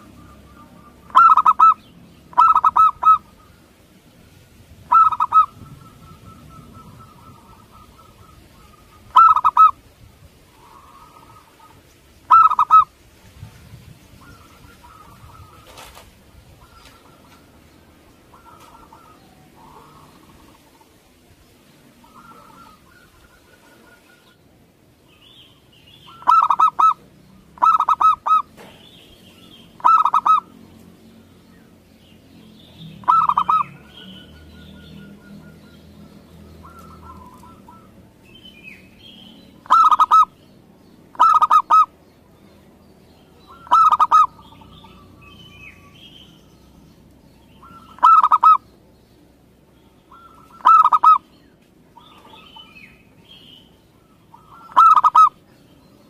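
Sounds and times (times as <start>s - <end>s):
dove cooing: 0.0s - 9.8s, 10.5s - 13.0s, 14.1s - 21.0s, 21.9s - 24.4s, 26.1s - 28.8s, 29.8s - 30.5s, 33.0s - 38.2s, 39.6s - 40.4s, 41.1s - 41.9s, 43.5s - 45.2s, 47.6s - 48.7s, 50.1s - 51.3s, 54.0s - 55.4s.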